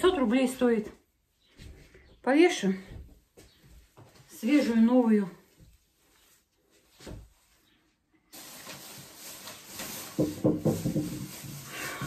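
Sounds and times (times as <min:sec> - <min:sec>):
plastic bag rustling: 0:08.2 - 0:12.0.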